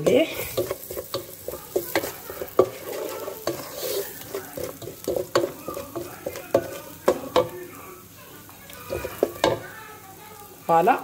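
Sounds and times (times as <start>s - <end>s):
wooden spoon scraping a pot: 0.0s - 7.5s
light sizzle of frying: 0.0s - 11.0s
spoon knocking against pot: 4.3s - 7.6s, 8.9s - 9.7s.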